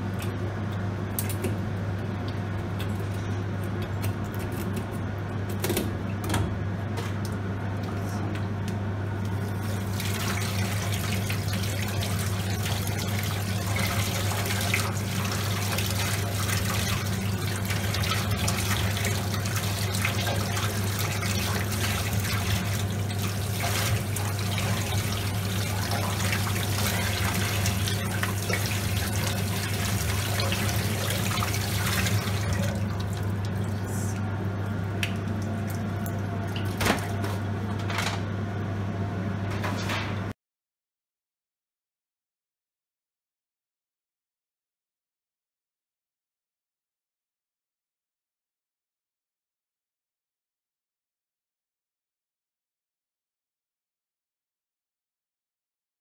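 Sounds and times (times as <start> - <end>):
steady low hum: 0.0 - 39.6
tap water splashing into sink: 36.5 - 37.4.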